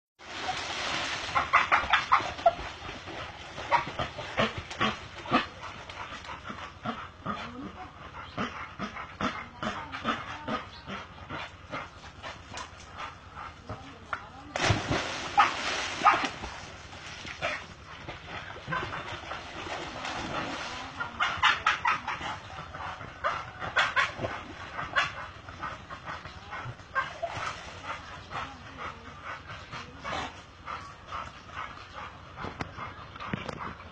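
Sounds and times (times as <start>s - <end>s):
dog barking and yipping: 1.4s - 2.6s, 15.4s - 16.3s.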